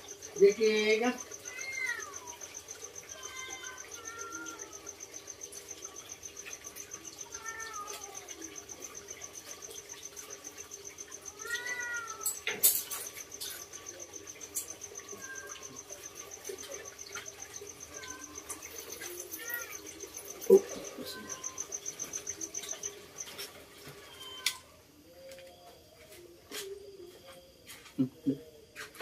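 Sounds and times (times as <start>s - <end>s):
high insect trill: 0.0s - 29.0s
meow-like animal cries: 0.4s - 5.0s, 7.0s - 8.6s, 11.2s - 13.1s, 14.6s - 21.8s, 24.1s - 24.7s.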